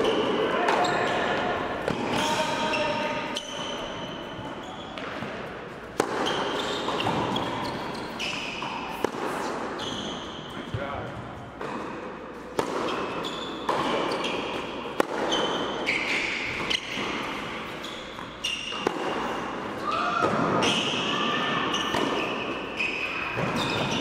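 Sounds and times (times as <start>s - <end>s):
sneakers squeaking on court: 0.0s - 11.8s, 12.4s - 19.6s, 20.5s - 24.0s
tennis balls bouncing and struck: 0.0s - 24.0s.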